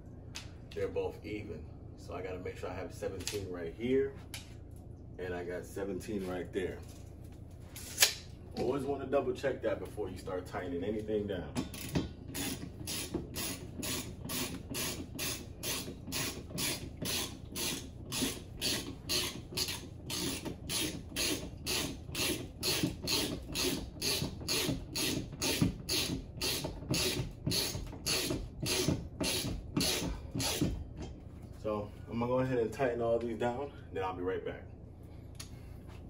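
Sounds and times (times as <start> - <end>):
ratchet wrench clicking: 11.7 - 30.6.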